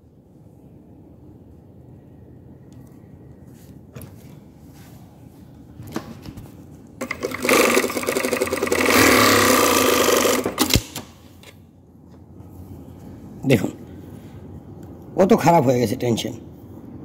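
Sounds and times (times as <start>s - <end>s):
sewing machine sewing: 7.0s - 10.9s.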